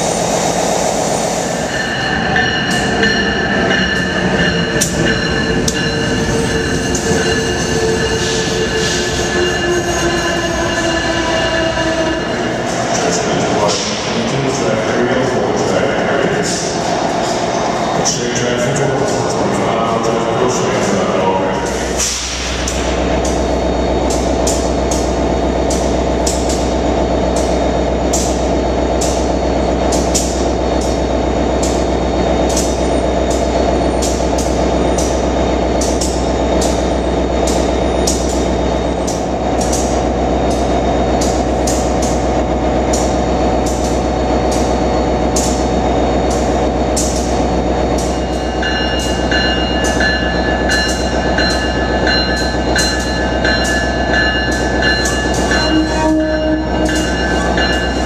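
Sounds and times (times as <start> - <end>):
locomotive machine hum: 0.0 - 58.0
electronic bell ringing: 48.1 - 58.0.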